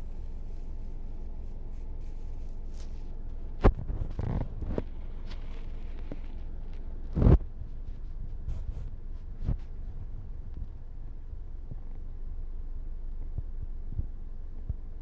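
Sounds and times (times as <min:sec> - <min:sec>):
rustling thump: 0:00.0 - 0:10.8
handling noise on microphone: 0:00.0 - 0:10.9
steady low rumble: 0:00.0 - 0:15.0.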